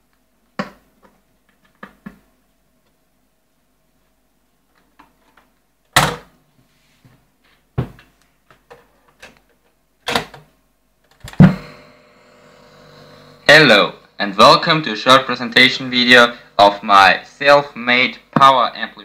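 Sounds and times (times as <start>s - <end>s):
steady hum: 11.2s - 19.0s.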